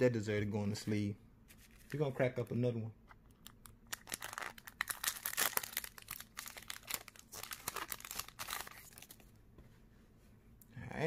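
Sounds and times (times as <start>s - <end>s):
foil pack tearing and crinkling: 3.9s - 9.2s.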